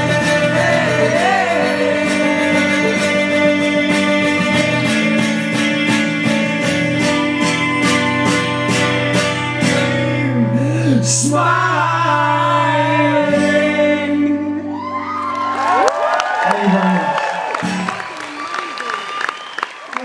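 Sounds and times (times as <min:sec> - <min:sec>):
acoustic guitar and mandola strumming: 0:00.0 - 0:14.6.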